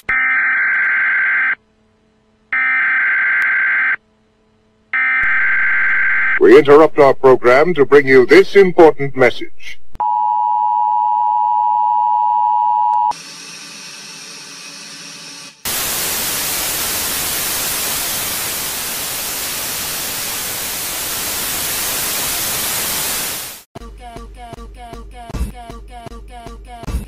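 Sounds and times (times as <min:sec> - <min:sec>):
buzzing tone: 0:04.9 - 0:06.5
tv static hiss: 0:15.7 - 0:23.7
music: 0:23.8 - 0:27.0.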